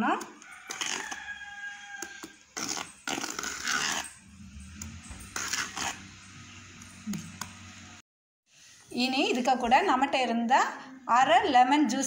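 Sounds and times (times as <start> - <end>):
whisk scraping steel bowl: 2.6 - 6.6.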